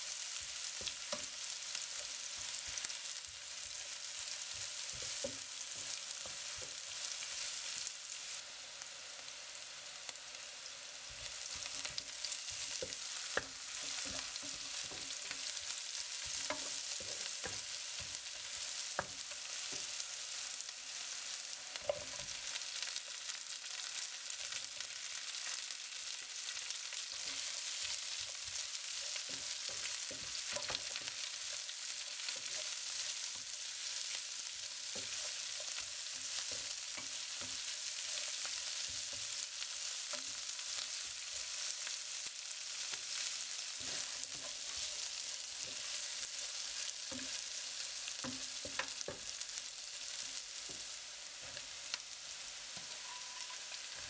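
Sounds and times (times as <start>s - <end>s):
oil sizzling in a pan: 0.0s - 54.0s
spatula scraping a pan: 11.1s - 20.4s, 26.6s - 39.4s, 43.0s - 49.4s, 52.7s - 54.0s.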